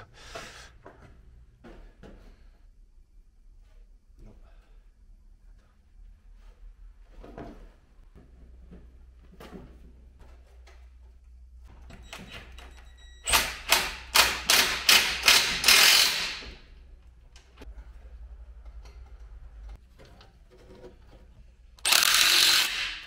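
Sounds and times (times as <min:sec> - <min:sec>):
ratchet wrench clicking: 0:13.3 - 0:16.4, 0:21.8 - 0:23.0
faint handling of metal parts: 0:16.8 - 0:21.8.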